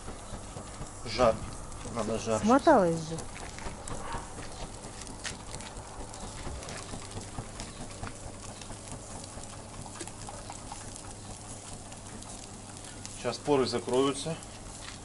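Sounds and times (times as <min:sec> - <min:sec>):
charcoal crackling and popping: 0:00.0 - 0:15.0.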